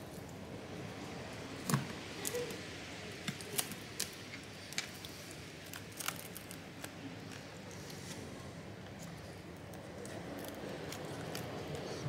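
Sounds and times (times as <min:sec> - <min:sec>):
glass clicking and cracking: 0:05.7 - 0:06.6.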